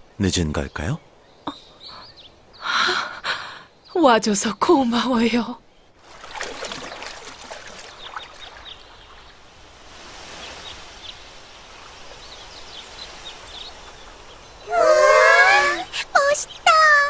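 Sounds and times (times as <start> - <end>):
water rushing: 6.0 - 17.0.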